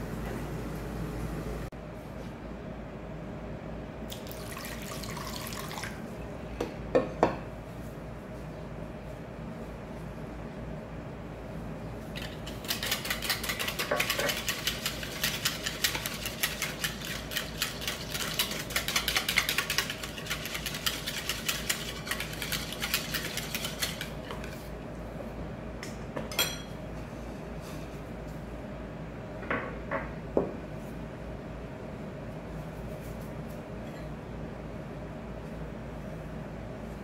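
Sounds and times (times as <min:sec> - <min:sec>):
whisk clicking against bowl: 0:12.2 - 0:24.5.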